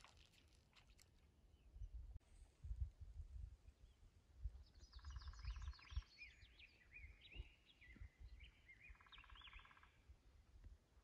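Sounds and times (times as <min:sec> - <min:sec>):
birds singing whistled notes: 0:03.6 - 0:10.1.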